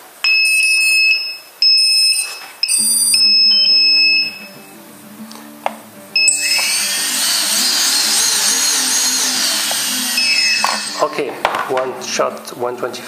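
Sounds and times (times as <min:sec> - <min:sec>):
quadcopter motors high-pitched whine: 0:06.2 - 0:11.4.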